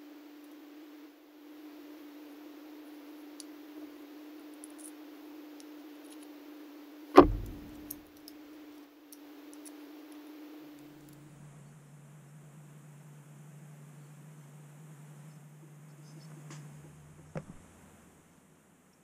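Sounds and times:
loud thump: 0:07.2 - 0:08.0
steady low hum: 0:07.2 - 0:08.0.

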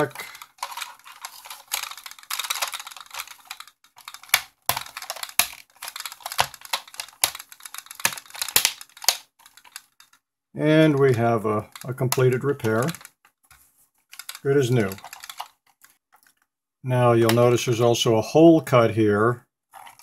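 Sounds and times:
rustling and scraping: 0:00.0 - 0:10.2, 0:10.8 - 0:16.4, 0:19.7 - 0:20.0
sharp plastic clicks and taps: 0:01.7 - 0:10.2.

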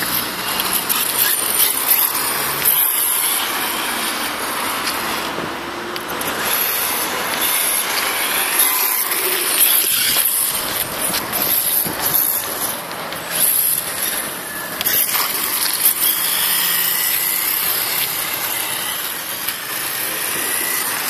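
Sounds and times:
toy truck motor whine: 0:00.0 - 0:21.0.

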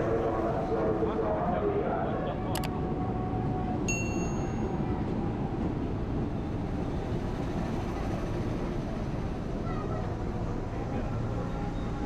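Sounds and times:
electric train rumbling: 0:00.0 - 0:12.0
high metallic ring: 0:03.9 - 0:04.7.

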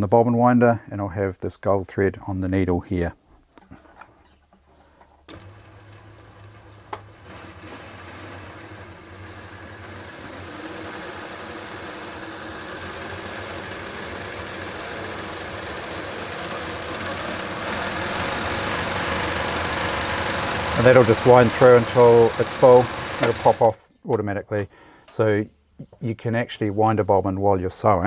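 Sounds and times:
sewing machine motor humming: 0:05.3 - 0:23.7.

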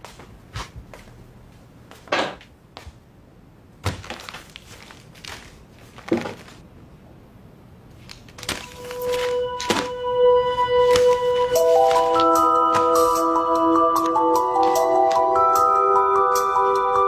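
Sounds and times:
plastic and paper rustling: 0:03.8 - 0:06.6, 0:08.0 - 0:13.2, 0:14.0 - 0:15.4
music with held tone: 0:08.7 - 0:17.0.

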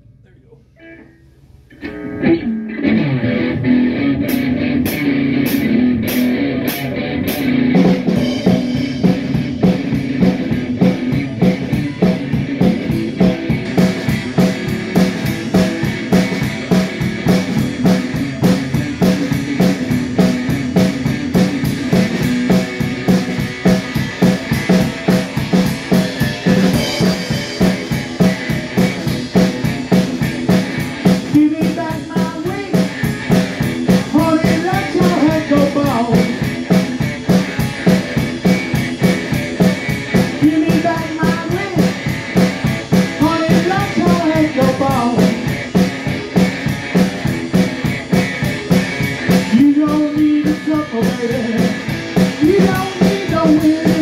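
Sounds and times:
electric guitar blues: 0:00.7 - 0:54.0
drum beat: 0:04.2 - 0:54.0.

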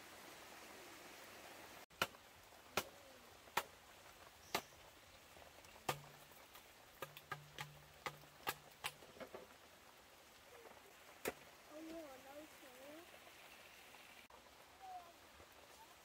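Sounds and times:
steady hiss: 0:00.0 - 0:16.0
knocks on bamboo: 0:05.9 - 0:06.2, 0:07.0 - 0:09.5.

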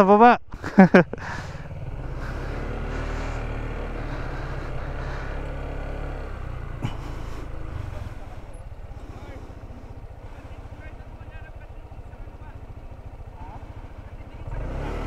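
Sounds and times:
motorcycle engine running: 0:00.5 - 0:15.0.

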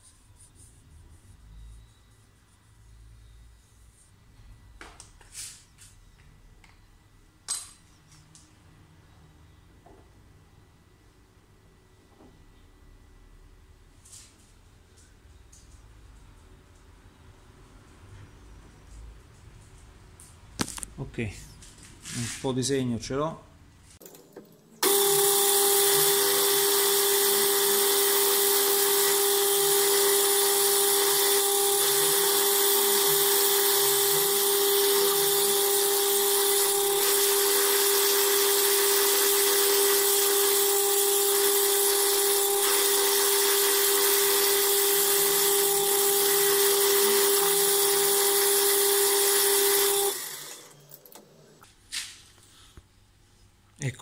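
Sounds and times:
metal lathe whining: 0:24.8 - 0:51.3.

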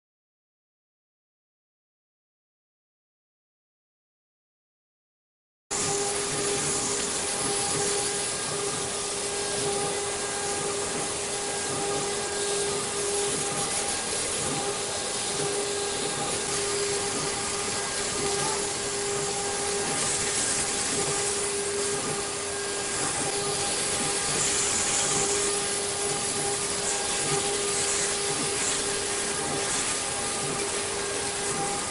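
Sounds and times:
high-pressure waterjet hissing: 0:05.7 - 0:31.9
droning tone: 0:05.8 - 0:31.9.

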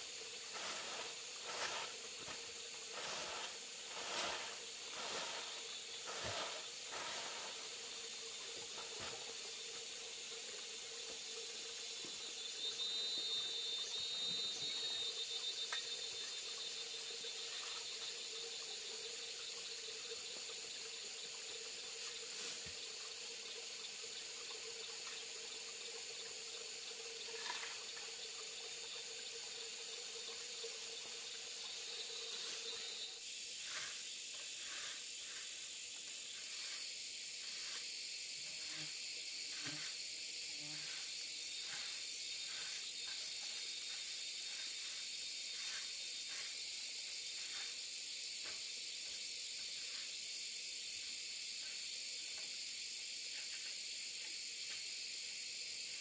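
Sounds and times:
crickets chirping: 0:00.0 - 0:56.0
short scratchy strokes: 0:00.5 - 0:07.8, 0:39.5 - 0:40.0.

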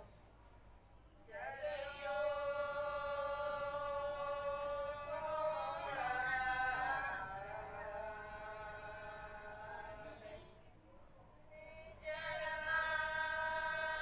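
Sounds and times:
person chanting a prayer: 0:01.3 - 0:10.6.

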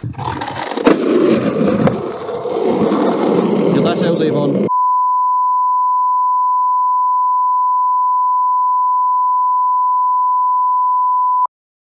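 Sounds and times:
steady test tone beep: 0:04.7 - 0:11.5.

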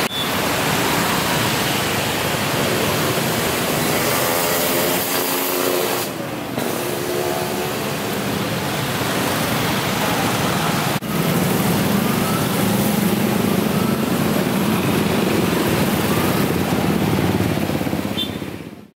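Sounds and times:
motorcycles and cars passing: 0:00.0 - 0:18.9.

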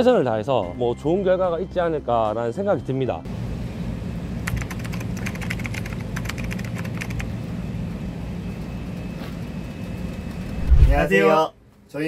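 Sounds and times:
low traffic rumble: 0:03.3 - 0:11.2
rapid irregular clicks: 0:04.4 - 0:07.3.

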